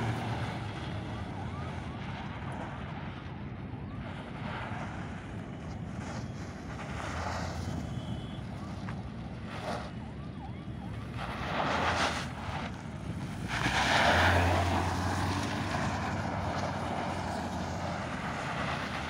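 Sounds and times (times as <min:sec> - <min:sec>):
car engine hum: 0:00.0 - 0:19.0
tyres on loose dirt: 0:11.0 - 0:19.0.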